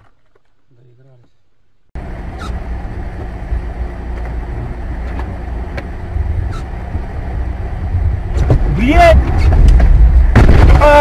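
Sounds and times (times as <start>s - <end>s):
car engine and road noise: 1.8s - 11.0s.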